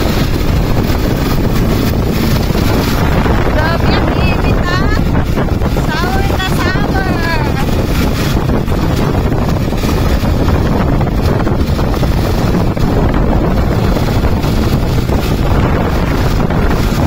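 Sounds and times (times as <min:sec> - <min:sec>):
vehicle engine and road noise: 0:00.0 - 0:17.0
wind buffeting microphone: 0:00.0 - 0:17.0.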